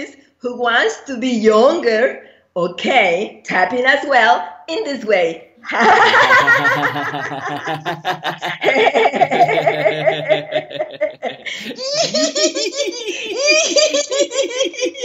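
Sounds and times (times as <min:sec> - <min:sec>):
man and woman laughing heartily: 0:05.7 - 0:15.0.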